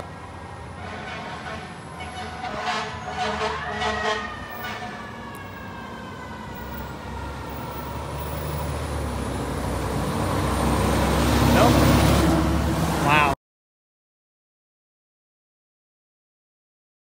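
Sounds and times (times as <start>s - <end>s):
fire truck siren: 0.0s - 13.3s
truck engine rumble: 0.0s - 13.4s.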